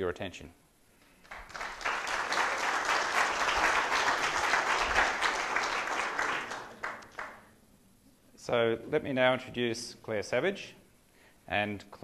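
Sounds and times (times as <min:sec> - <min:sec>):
audience applauding: 0:01.2 - 0:07.5.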